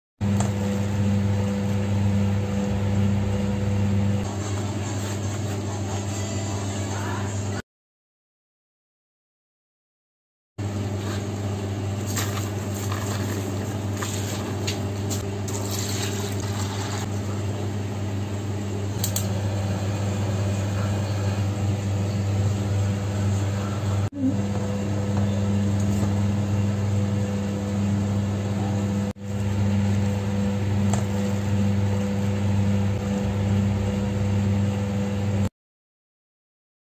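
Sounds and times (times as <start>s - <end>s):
steady low hum: 10.6s - 35.5s.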